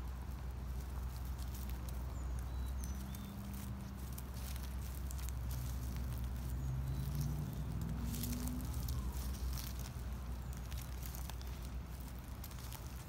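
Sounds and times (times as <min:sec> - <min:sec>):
footsteps in dry leaves: 0:00.0 - 0:13.0
low steady rumble: 0:00.0 - 0:13.0
distant bird chirps: 0:02.0 - 0:12.1.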